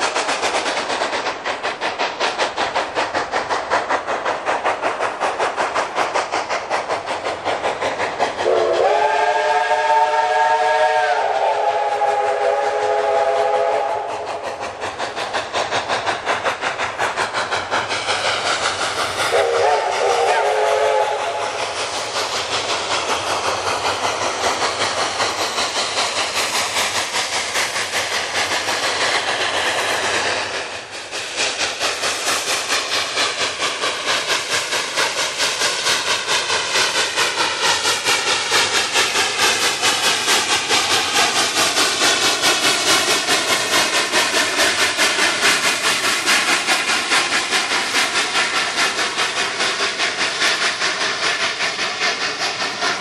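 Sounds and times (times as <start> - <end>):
steam engine exhaust chuffing: 0.0 - 53.0
steam whistle blasts: 8.4 - 14.3, 19.3 - 21.5.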